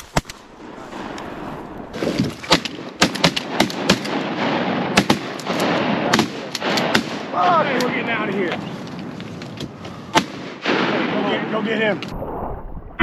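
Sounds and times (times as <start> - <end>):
shotgun shots: 1.9 - 8.0, 10.1 - 11.5.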